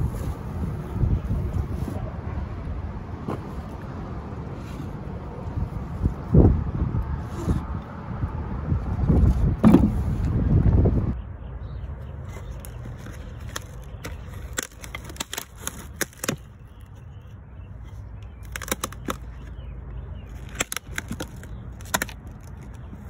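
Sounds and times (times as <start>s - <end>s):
brittle wrapping crackling: 12.3s - 17.0s, 18.3s - 19.5s, 20.3s - 23.0s.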